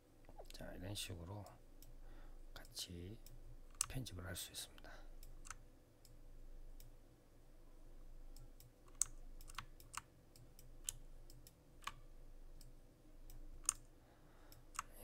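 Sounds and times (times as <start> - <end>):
mouse and keyboard clicks: 3.7 - 4.0, 8.5 - 12.0, 13.3 - 13.9.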